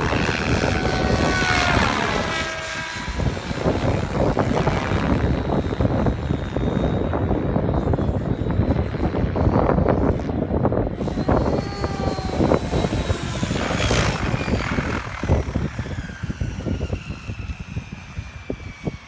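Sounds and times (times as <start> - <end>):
high whine falling in pitch: 0.0 - 19.0
rotor blades whoosh: 0.0 - 19.0.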